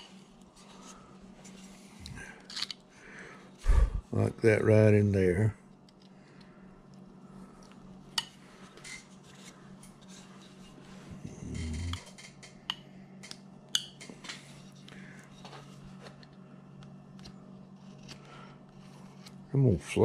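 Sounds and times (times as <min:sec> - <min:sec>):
low handling rumble: 0:03.7 - 0:04.3, 0:11.0 - 0:12.0.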